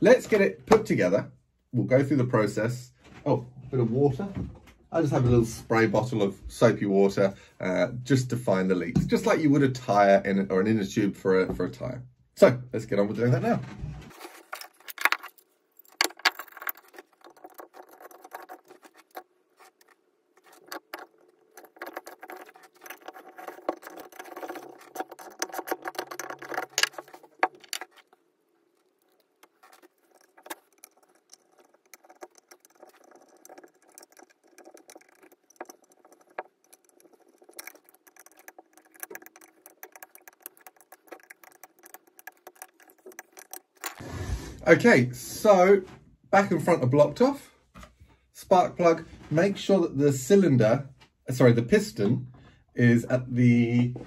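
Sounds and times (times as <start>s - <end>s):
metal parts clicking and rattling: 14.1s - 44.0s
screwdriver tightening: 28.9s - 44.0s.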